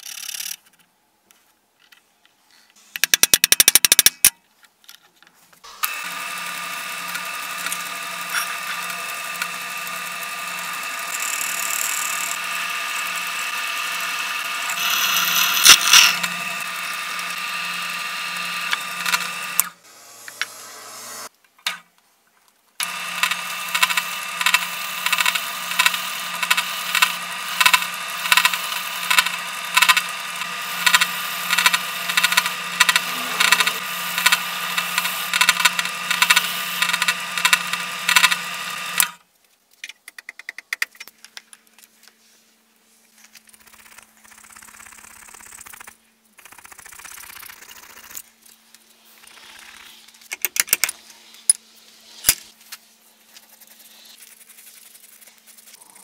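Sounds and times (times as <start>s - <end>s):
sharp metallic ticks: 3.0s - 4.4s, 5.8s - 17.4s, 22.8s - 39.2s
drill press motor hum: 5.7s - 21.3s, 22.8s - 39.2s
wire wheel scratching metal: 5.8s - 19.8s, 22.8s - 39.2s.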